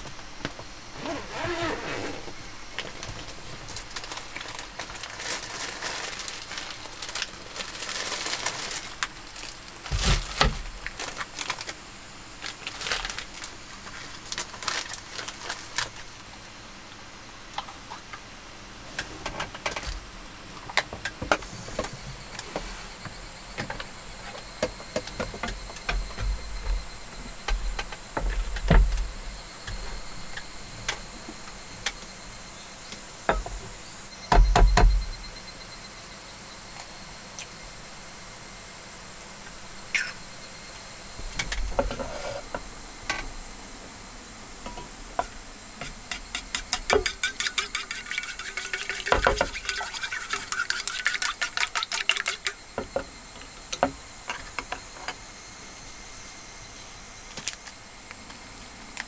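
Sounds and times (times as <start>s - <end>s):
eggs cracking: 47.2s - 52.6s.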